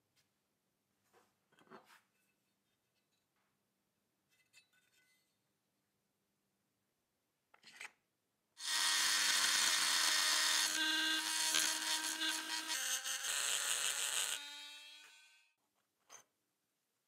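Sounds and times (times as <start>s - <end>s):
high-speed power tool whining: 8.6s - 15.4s.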